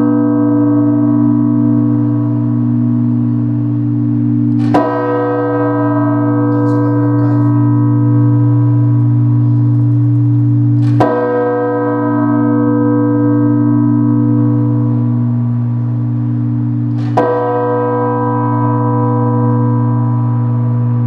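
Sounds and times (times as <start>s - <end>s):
church bell tolling: 0.0s - 21.0s.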